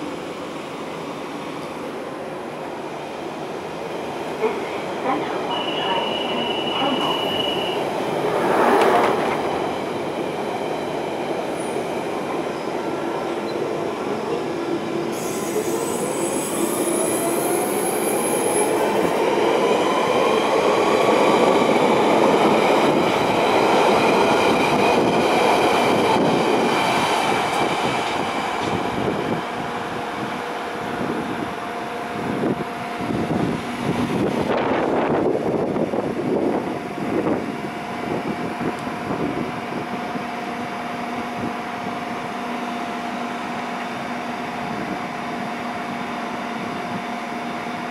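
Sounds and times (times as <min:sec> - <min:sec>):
steel wheels rumbling and squealing: 0:05.5 - 0:07.9.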